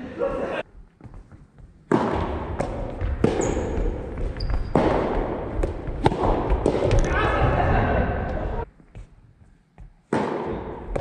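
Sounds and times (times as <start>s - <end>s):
racket striking ball with echo: 1.8s - 7.5s, 10.0s - 11.0s
shoe squeaks on wooden floor: 3.4s - 3.7s, 4.3s - 4.8s.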